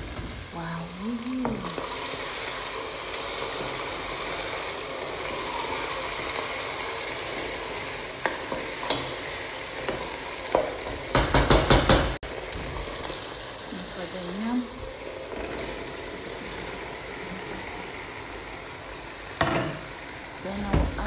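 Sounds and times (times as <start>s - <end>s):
stew sizzling in a pot: 0.0s - 21.0s
loud knocks: 11.1s - 12.2s.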